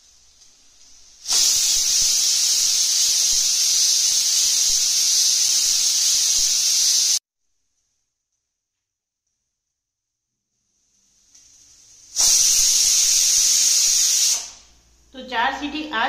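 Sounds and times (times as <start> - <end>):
pressure cooker whistle hissing steam: 1.2 - 7.2, 11.4 - 14.7.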